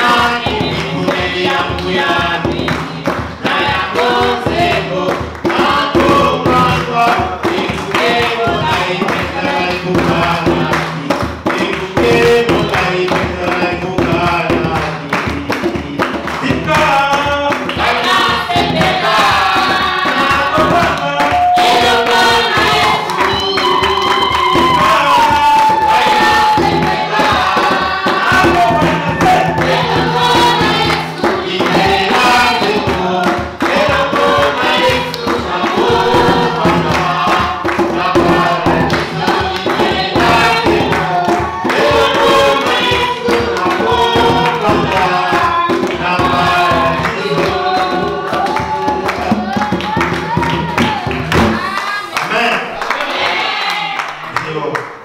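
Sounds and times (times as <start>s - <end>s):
band with steady beat: 0.0s - 52.0s
choir singing worship song: 0.0s - 54.6s.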